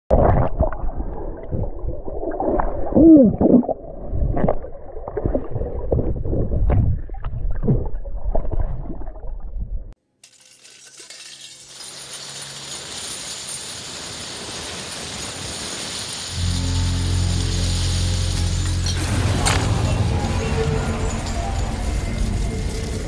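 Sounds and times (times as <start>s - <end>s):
muffled water gurgling and sloshing: 0.1s - 10.0s.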